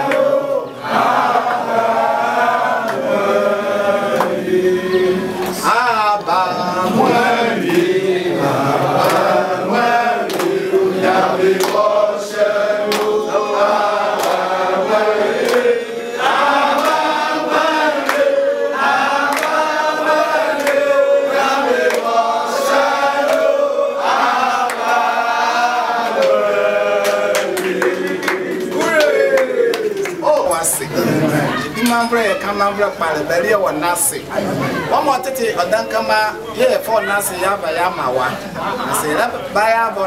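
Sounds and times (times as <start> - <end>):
voices chanting a song: 0.0 - 32.8
sharp claps or knocks: 9.0 - 9.3, 10.2 - 10.6, 11.6 - 11.9, 12.9 - 13.2, 14.2 - 14.4, 15.4 - 15.7, 18.0 - 18.3, 19.3 - 19.6.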